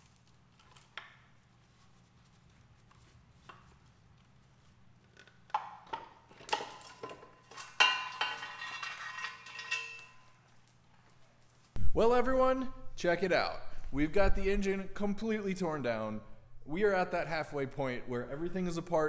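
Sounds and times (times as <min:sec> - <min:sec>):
metal clanking: 0:06.3 - 0:10.4
chain rattle: 0:06.5 - 0:10.5.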